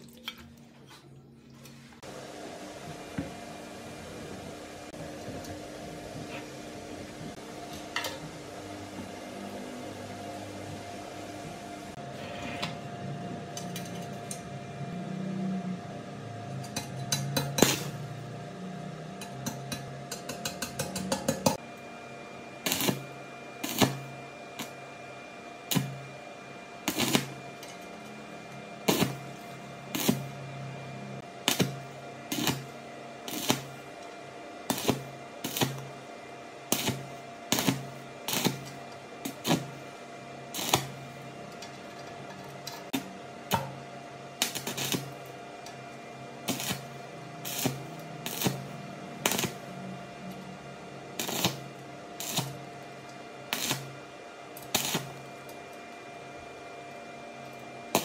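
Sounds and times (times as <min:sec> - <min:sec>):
steady hum: 0:00.7 - 0:58.0
welding arc crackling: 0:16.8 - 0:18.2, 0:22.6 - 0:24.8, 0:25.7 - 0:26.1, 0:26.8 - 0:27.7, 0:28.8 - 0:30.4, 0:31.4 - 0:33.9, 0:34.6 - 0:35.9, 0:36.7 - 0:39.8, 0:40.5 - 0:41.0, 0:44.4 - 0:45.2, 0:46.4 - 0:49.7, 0:51.1 - 0:52.6, 0:53.5 - 0:54.0, 0:54.6 - 0:55.5.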